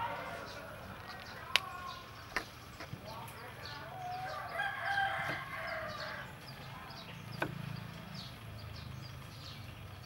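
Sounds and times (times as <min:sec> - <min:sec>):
rooster crowing: 0:00.0 - 0:00.9, 0:03.9 - 0:06.3
small birds chirping: 0:00.0 - 0:10.0.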